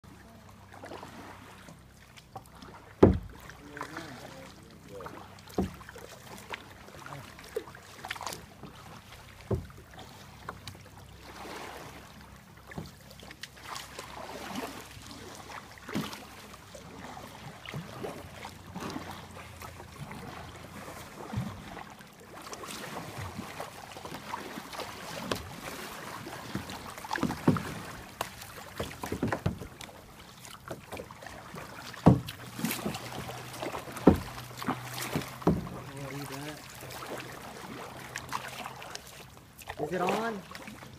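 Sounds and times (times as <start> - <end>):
moving water wash: 0.0 - 40.9
paddle splashing in water: 0.0 - 40.9
sharp splashes or knocks: 2.9 - 3.9, 5.5 - 6.5, 9.4 - 9.8, 22.8 - 38.9.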